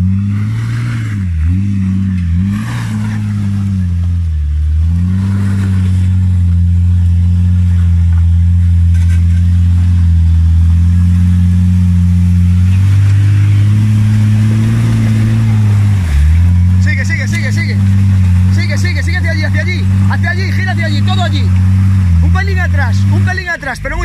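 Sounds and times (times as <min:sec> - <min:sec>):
off-road vehicle engine climbing: 0:00.0 - 0:24.0.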